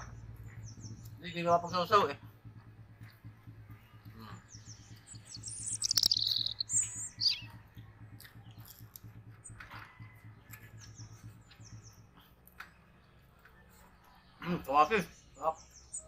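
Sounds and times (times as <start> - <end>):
small birds chirping: 0.0 - 16.0
low steady hum: 2.1 - 14.3.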